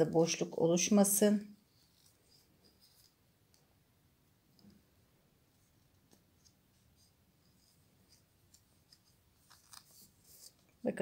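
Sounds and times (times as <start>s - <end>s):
yarn ticks and rustles: 1.6s - 3.7s, 5.7s - 10.9s.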